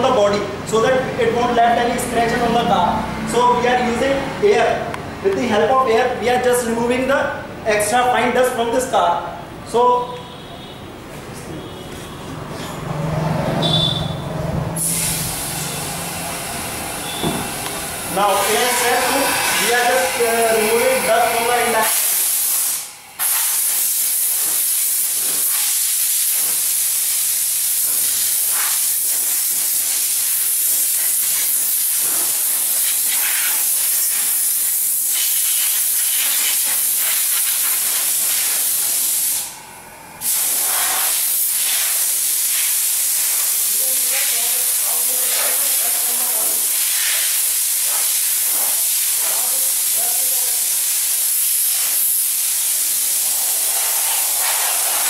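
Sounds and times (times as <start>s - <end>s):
compressed air blow gun hissing: 14.8s - 39.6s, 40.2s - 55.0s.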